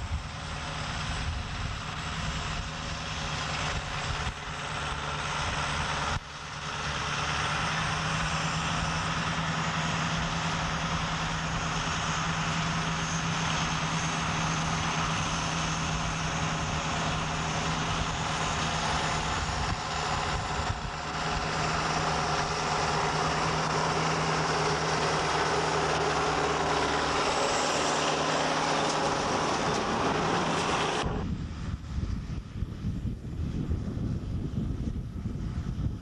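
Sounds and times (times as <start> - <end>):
wind rumble on microphone: 0.0 - 6.3, 14.3 - 25.4, 29.0 - 36.0
tractor diesel engine running: 0.0 - 36.0.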